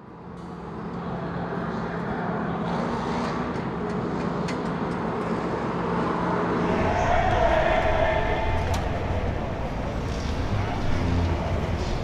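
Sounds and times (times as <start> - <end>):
distant engine rumble: 6.6 - 12.0.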